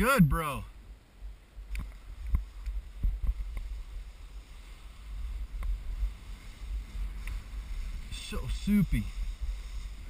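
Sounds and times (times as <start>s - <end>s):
wind rumble on microphone: 0.7s - 10.0s
skis sliding through slushy snow: 2.0s - 10.0s.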